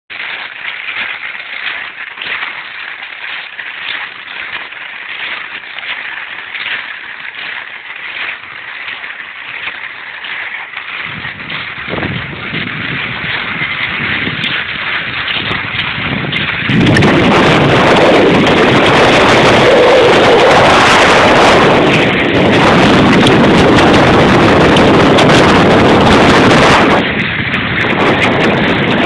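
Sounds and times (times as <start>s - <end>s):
skis swishing over snow: 0.1s - 29.0s
wind buffeting microphone: 10.8s - 29.0s.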